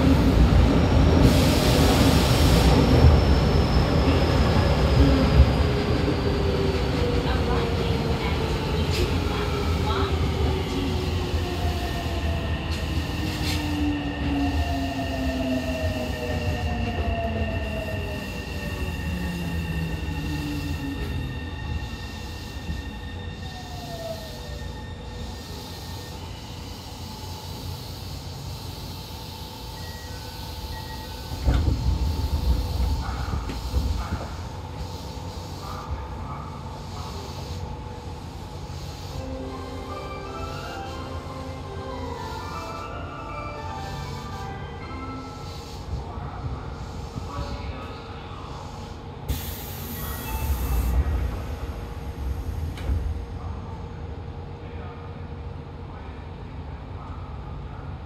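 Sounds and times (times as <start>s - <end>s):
subway train rumbling: 0.0s - 58.0s
train clattering and thuds: 31.1s - 34.9s
loud hiss: 48.8s - 51.0s.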